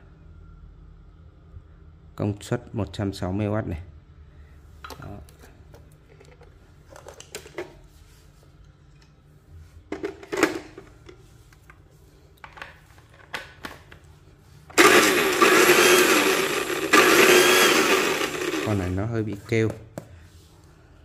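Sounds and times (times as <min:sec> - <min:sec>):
blender motor whining: 0:14.7 - 0:19.0.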